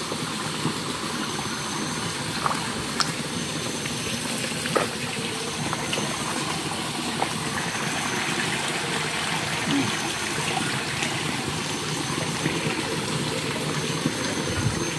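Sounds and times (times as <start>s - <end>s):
stream running: 0.0s - 14.9s
small clicks and splashes: 2.3s - 6.6s.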